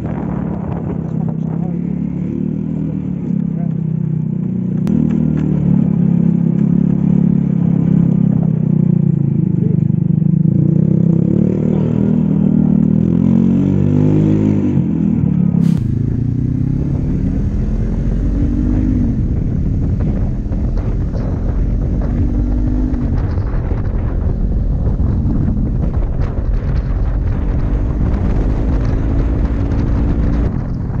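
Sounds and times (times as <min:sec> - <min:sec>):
rushing wind noise: 0:00.0 - 0:02.4, 0:15.6 - 0:31.0
another motorcycle engine: 0:00.0 - 0:31.0
motorcycle engine revving: 0:00.0 - 0:31.0
sudden sharp noise: 0:15.6 - 0:24.2.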